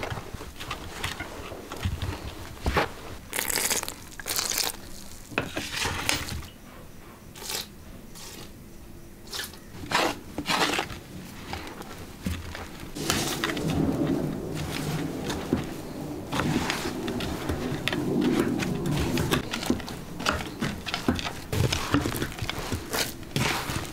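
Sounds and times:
hands kneading dough in a bowl: 9.3s - 23.9s.

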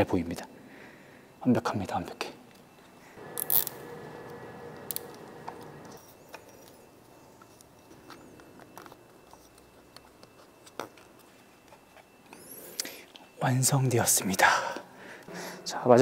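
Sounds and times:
low hum: 3.2s - 6.0s.

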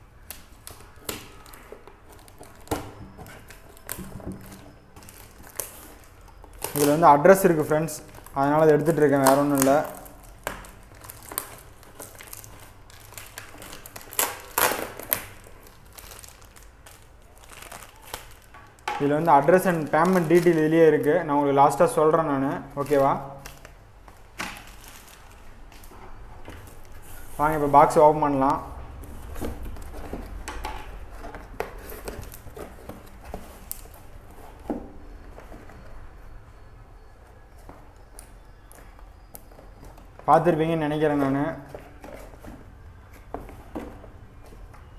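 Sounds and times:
plastic crinkling: 0.2s - 36.1s
cardboard flaps rustling: 28.6s - 36.0s.

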